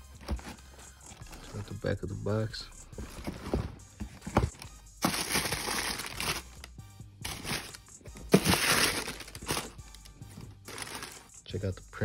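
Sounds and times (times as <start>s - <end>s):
background music: 0.0s - 12.0s
box thump: 3.0s - 5.6s, 7.6s - 9.7s
tissue paper crinkling: 3.2s - 6.6s, 7.2s - 10.0s, 10.7s - 11.3s.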